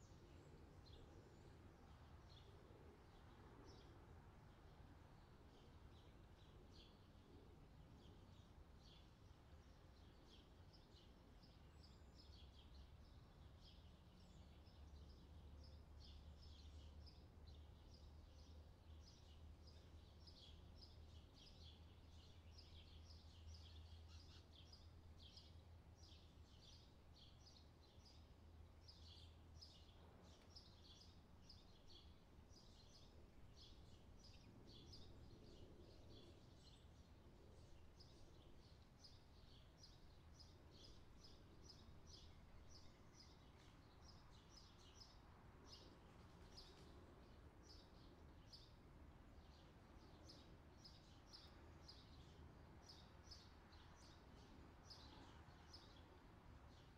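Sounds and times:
small birds chirping: 0.0 - 56.9.

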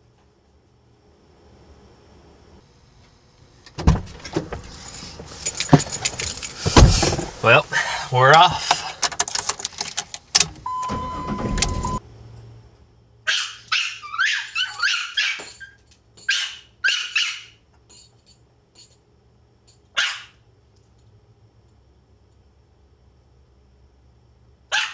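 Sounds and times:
clicks inside a car: 8.4 - 11.0
dog barking sharply: 13.3 - 15.5, 16.3 - 17.6, 20.0 - 20.4.

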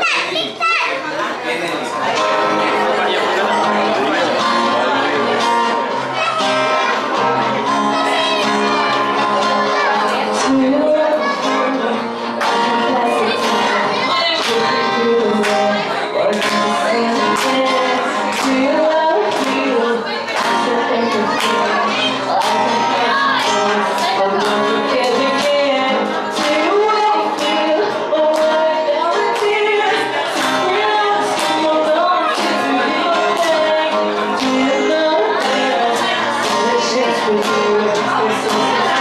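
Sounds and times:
strummed acoustic guitar: 1.2 - 39.0
woman singing into a microphone: 8.9 - 39.0.

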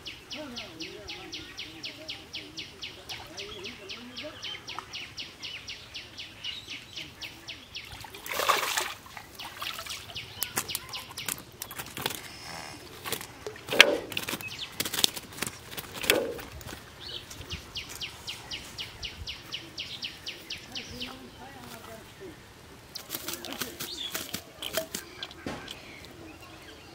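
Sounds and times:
fish splashing in water: 7.8 - 16.9, 23.0 - 25.8
fish flapping slaps: 10.4 - 12.3, 13.0 - 16.8, 23.0 - 25.8.

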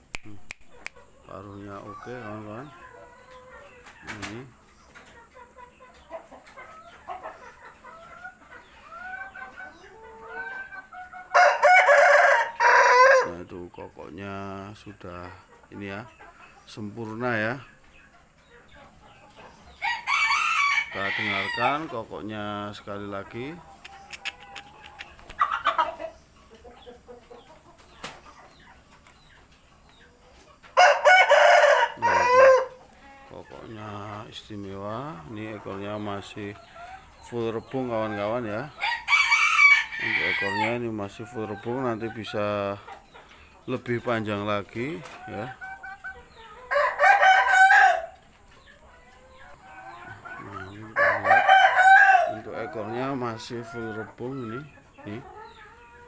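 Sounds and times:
chickens clucking: 0.0 - 56.0
rooster crowing: 11.3 - 13.3, 19.8 - 21.8, 30.8 - 32.8, 38.8 - 40.8, 46.7 - 48.2, 50.9 - 52.8.

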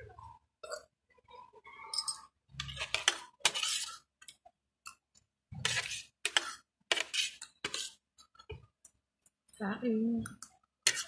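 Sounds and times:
metal spoon scraping ceramic plate: 2.0 - 4.1, 5.6 - 8.0.

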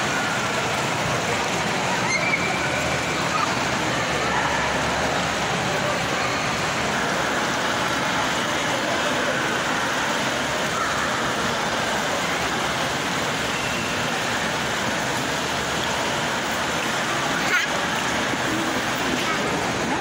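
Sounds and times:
busy indoor ambience: 0.0 - 20.0.

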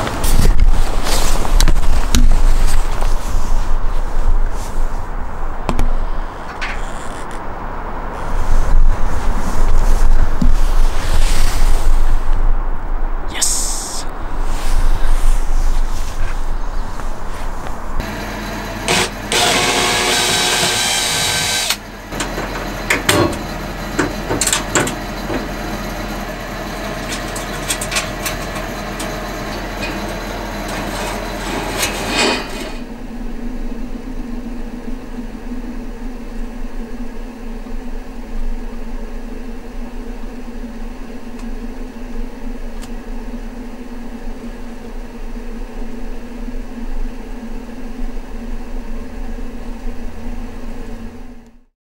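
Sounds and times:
steady low hum: 12.1 - 51.4
cordless drill running: 18.0 - 32.8
knocks and clatter on metal fittings: 22.1 - 32.8.

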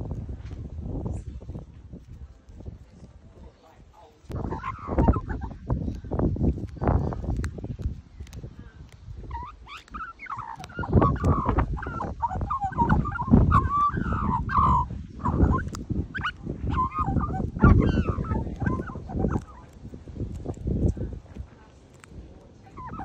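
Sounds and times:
low rumbling microphone noise: 0.0 - 23.0
magpies warbling: 4.3 - 5.6, 9.2 - 19.8, 22.7 - 23.0.

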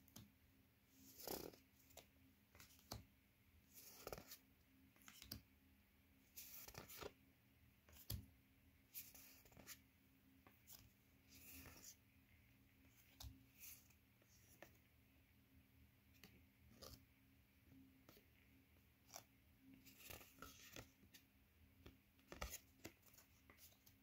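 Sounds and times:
cards sliding and rustling: 3.7 - 4.4, 6.3 - 7.2, 7.9 - 8.3, 8.9 - 9.8, 10.5 - 12.0, 12.9 - 14.8, 19.0 - 21.2, 22.2 - 24.0.

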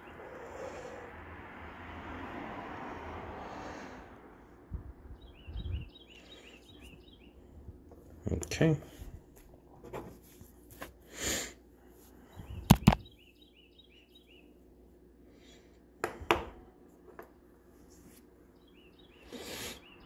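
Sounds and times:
bird chirping: 5.1 - 7.5, 12.3 - 14.6, 18.5 - 20.0.

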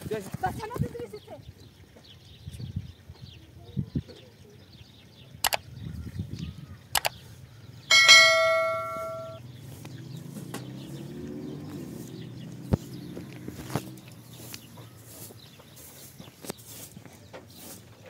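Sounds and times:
sharp clicks: 5.4 - 5.7, 7.0 - 7.2
metallic bell-like ring: 7.9 - 9.4.

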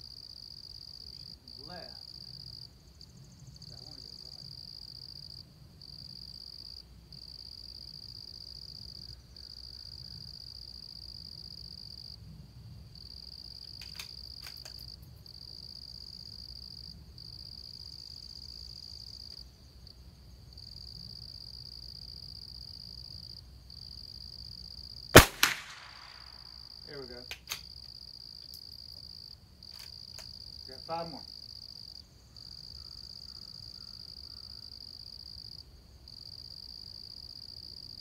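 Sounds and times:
crickets trilling: 0.0 - 38.0
faint clicks: 13.6 - 14.9.

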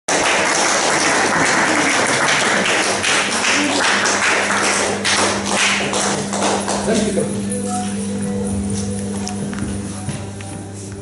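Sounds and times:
hand clapping: 0.1 - 7.9
jingling percussion: 6.4 - 10.0.

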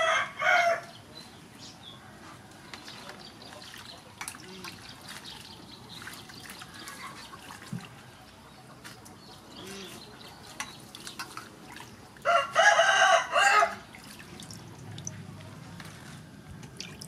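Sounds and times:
rooster crowing: 0.0 - 0.9, 12.2 - 13.8.

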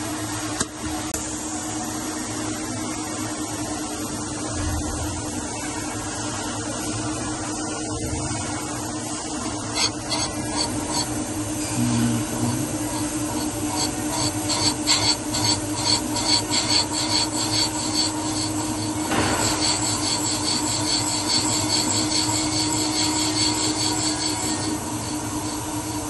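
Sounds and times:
spindle motor hum: 0.0 - 26.0
valve seat cutter scraping metal: 9.0 - 26.0.

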